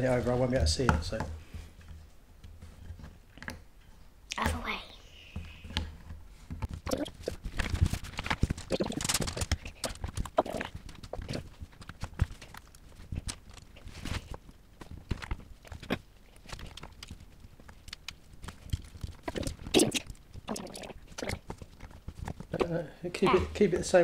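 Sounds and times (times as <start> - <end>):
plastic pieces clicking and rattling: 7.2 - 13.7.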